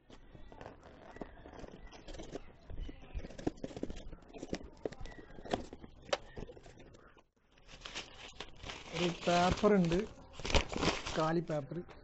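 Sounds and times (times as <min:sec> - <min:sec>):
rustling cardboard flaps and paper: 0:07.6 - 0:11.4.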